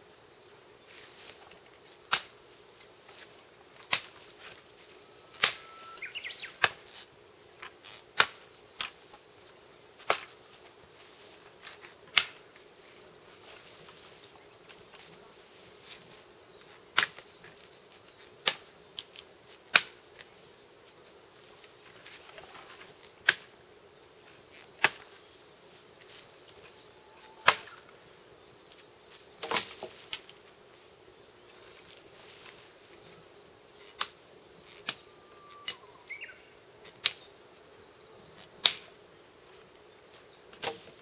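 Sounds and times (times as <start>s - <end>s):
twigs snapping: 1.2s - 4.6s, 11.6s - 12.6s, 15.9s - 20.4s, 26.0s - 27.9s, 28.7s - 30.6s, 33.8s - 36.2s, 36.8s - 37.3s, 38.6s - 39.0s.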